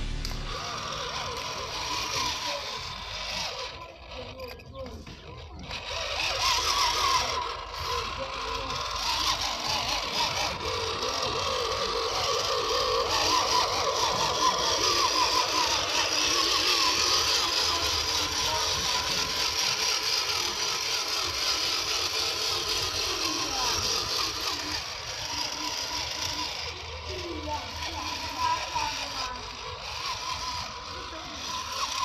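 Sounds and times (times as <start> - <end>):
small electric motor whining: 0.0 - 32.0.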